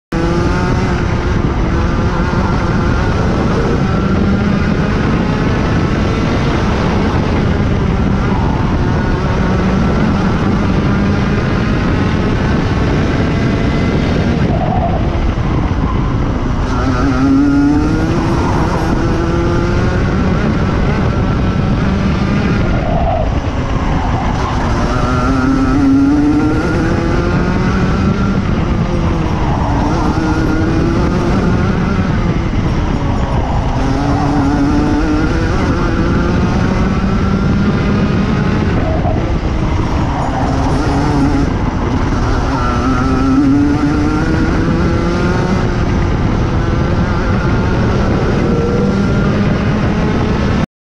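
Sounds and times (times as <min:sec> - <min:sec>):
kart engine racing: 0:00.1 - 0:50.7.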